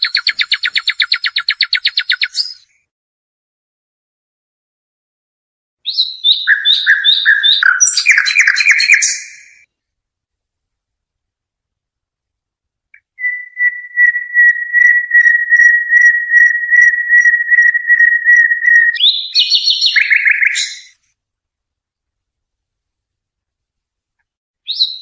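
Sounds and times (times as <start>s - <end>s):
songbird whistling and trilling: 0.0s - 2.7s, 5.8s - 9.7s, 13.0s - 21.0s, 24.6s - 25.0s.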